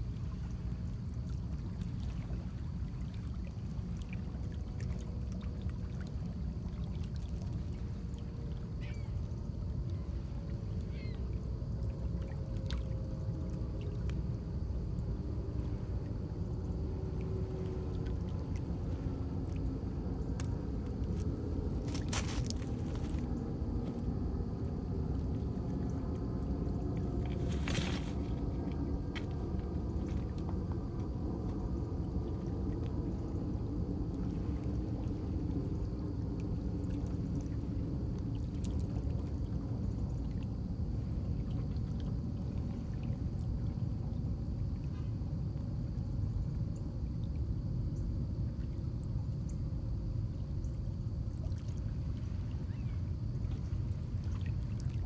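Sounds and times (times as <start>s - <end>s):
low rumble of wind: 0.0s - 55.0s
waves lapping against rocks: 14.9s - 24.1s, 27.0s - 30.2s.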